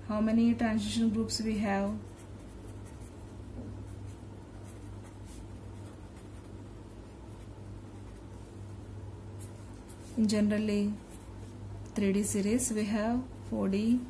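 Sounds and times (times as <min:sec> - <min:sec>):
steady low hum: 0:00.0 - 0:14.0
pen scratching on paper: 0:02.0 - 0:08.5.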